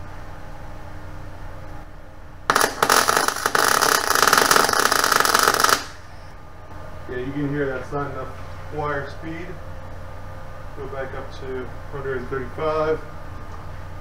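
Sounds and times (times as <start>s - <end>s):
steady low hum: 0.0s - 14.0s
welding arc crackling: 2.5s - 6.2s.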